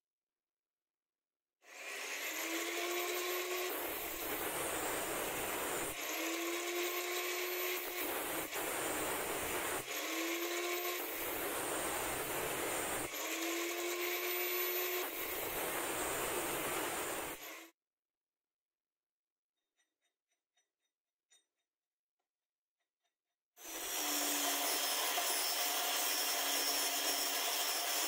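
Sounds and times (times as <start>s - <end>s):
grinder cutting steel rod: 1.7s - 17.7s, 23.6s - 28.0s.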